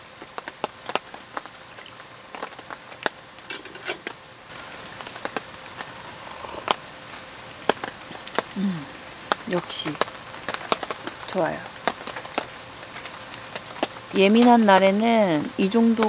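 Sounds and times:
raindrops ticking: 0.0 - 16.0
steady hiss of rain: 0.0 - 16.0
person humming low: 8.6 - 9.0.

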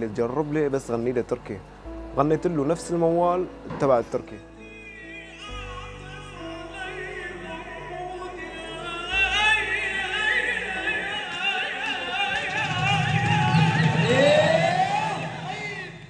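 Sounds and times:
low steady backing tones: 0.0 - 16.0
man singing ornamented melody: 4.4 - 16.0.

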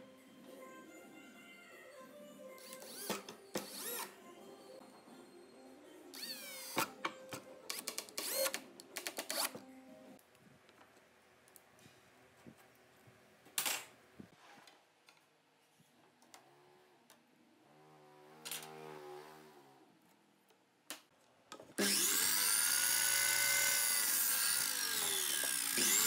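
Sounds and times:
cordless drill driving screw into wood: 21.8 - 26.0.

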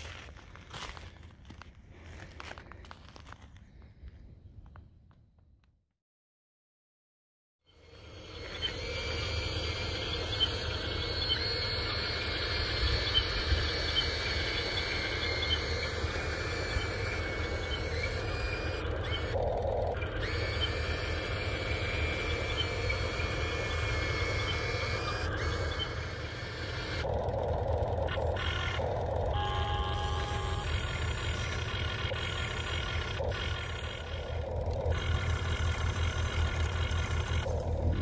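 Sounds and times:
faint high whine: 7.7 - 38.0
small birds chirping: 8.2 - 19.4, 20.0 - 27.0.

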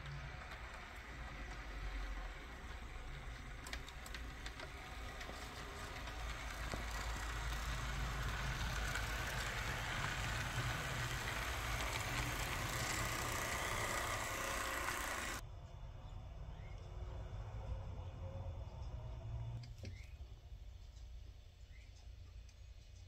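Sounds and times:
model train motor hum: 0.0 - 15.4
wheels on rails: 0.0 - 15.5.

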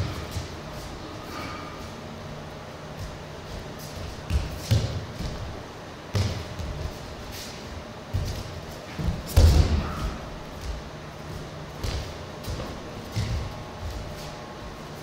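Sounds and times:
bare feet thumping on mats: 2.9 - 14.8.

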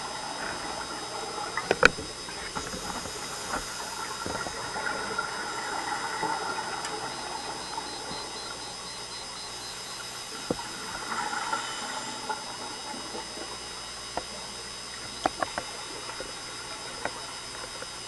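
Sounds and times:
regulator exhale bubbles: 0.0 - 9.1
steady underwater hiss: 0.0 - 18.0.

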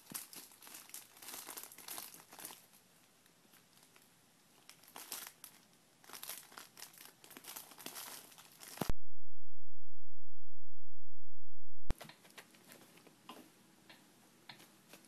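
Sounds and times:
tote bag rustling and crinkling: 0.0 - 2.8, 3.5 - 8.9.

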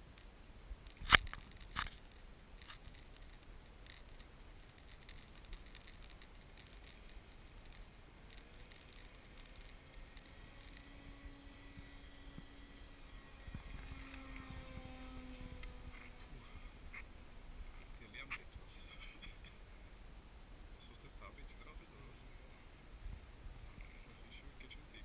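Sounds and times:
faint ticks: 0.0 - 19.9
model plane motor hum: 4.9 - 17.9.

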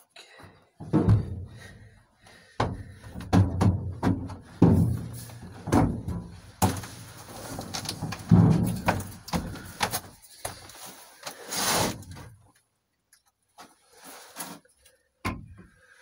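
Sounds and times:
hollow knocks in truck bed: 3.3 - 6.9, 8.2 - 9.5.

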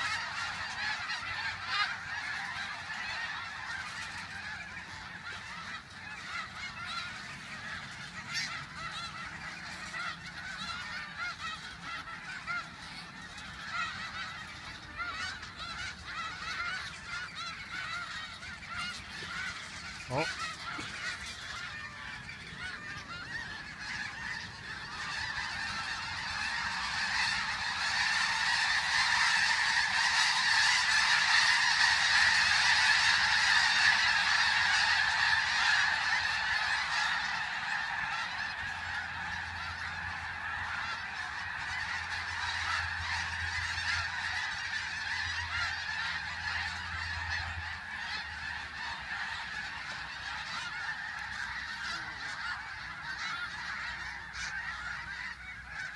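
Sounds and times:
flock of geese honking: 0.0 - 55.9.

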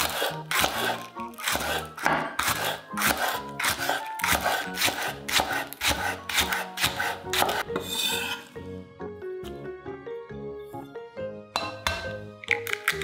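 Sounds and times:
knife slicing onto cutting board: 0.0 - 8.5
background music: 0.0 - 13.0.

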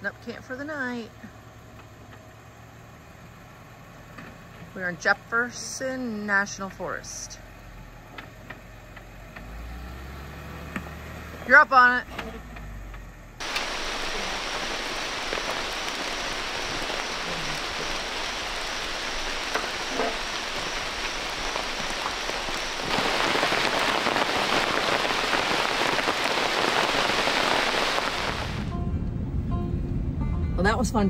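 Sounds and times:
steady rain falling: 13.4 - 28.7.

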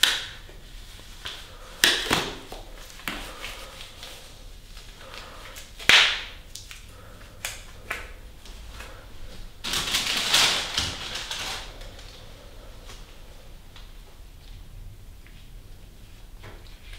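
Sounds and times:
latex glove snapping: 1.2 - 3.2, 5.2 - 9.0.

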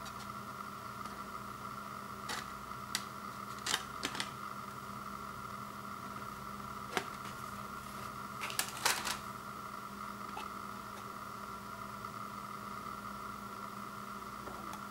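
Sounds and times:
steady background hum: 0.0 - 14.9
plastic clicks of disc case: 2.3 - 4.3.

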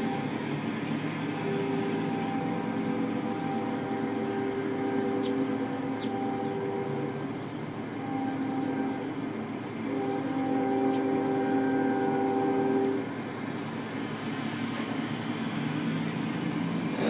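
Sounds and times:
street traffic: 0.0 - 17.0
train rumble: 0.0 - 17.0
locomotive horn blasts: 1.2 - 13.2.

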